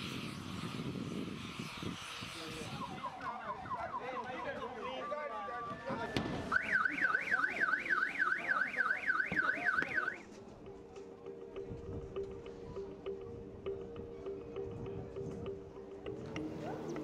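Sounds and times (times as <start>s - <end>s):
car alarm warbling: 2.7s - 10.2s.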